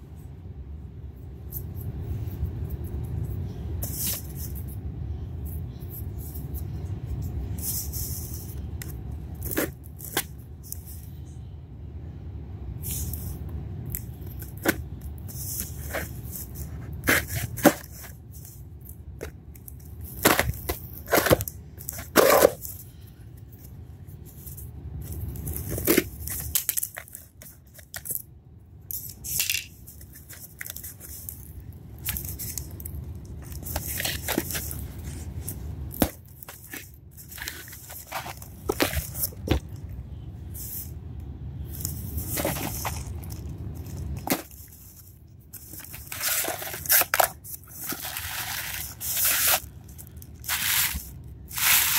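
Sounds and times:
cardboard tearing: 50.4s - 51.9s.

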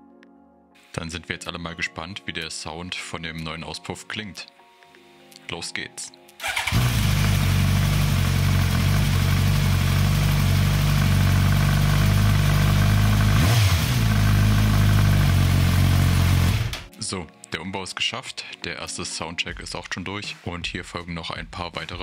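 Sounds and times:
motorcycle engine idling: 6.4s - 16.9s.

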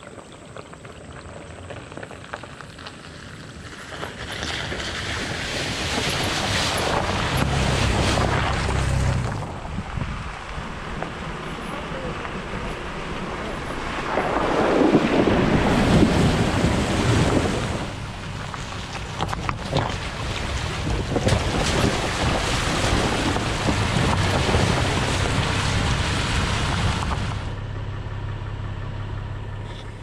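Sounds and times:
tyres splashing through water: 0.0s - 27.6s
low hum: 6.8s - 30.0s.

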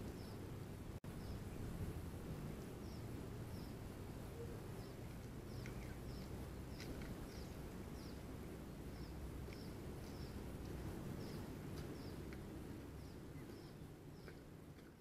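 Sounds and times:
small bird chirping: 0.0s - 0.4s, 1.1s - 1.7s, 2.7s - 8.3s, 8.9s - 10.4s
low background rumble: 0.0s - 15.0s.

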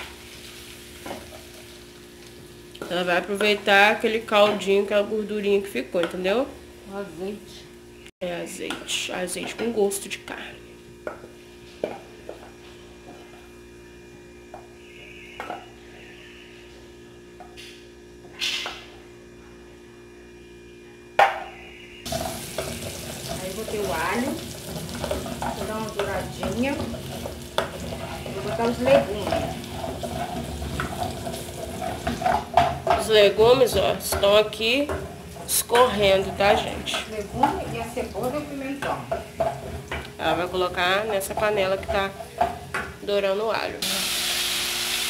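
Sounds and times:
garlic sizzling in hot oil: 0.0s - 4.1s, 22.1s - 42.8s, 43.8s - 45.0s
wooden spoon scraping a pan: 22.1s - 42.6s.

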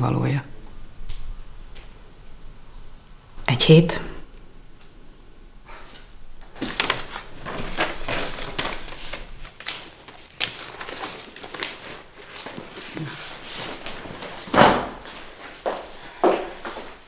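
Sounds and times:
paper rustling and crinkling: 6.4s - 16.0s.

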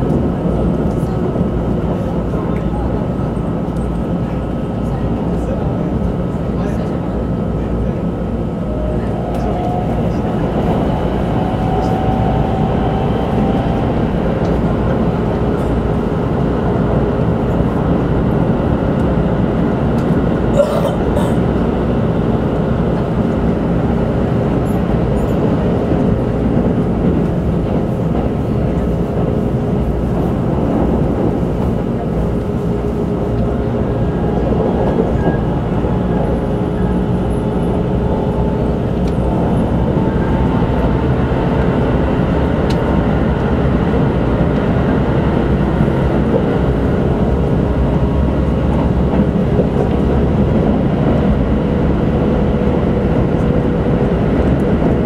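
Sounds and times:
train wheels rumbling on track: 0.0s - 55.0s.

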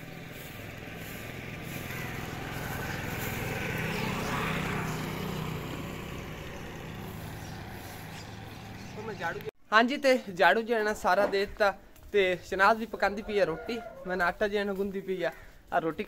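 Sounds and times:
motorcycle passing by: 0.0s - 9.5s.

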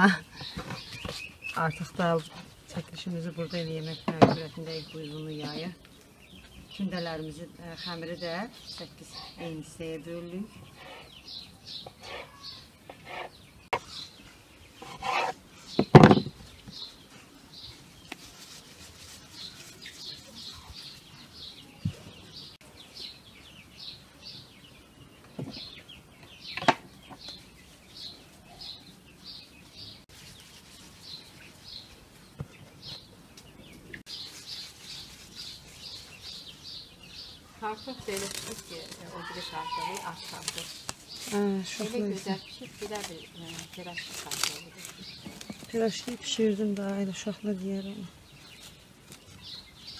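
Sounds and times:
small bird chirping: 0.4s - 49.9s
knocks on wooden board: 4.1s - 4.4s, 15.8s - 16.4s.

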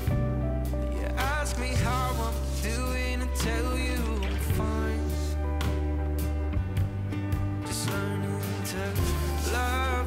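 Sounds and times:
steady bass line: 0.0s - 10.0s
person singing: 0.8s - 5.6s, 7.6s - 10.0s.

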